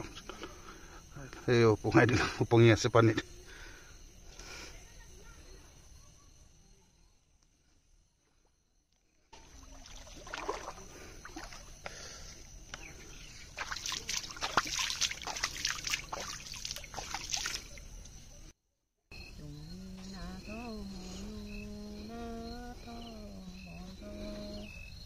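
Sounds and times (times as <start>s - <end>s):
pond water splashing: 9.2s - 18.5s.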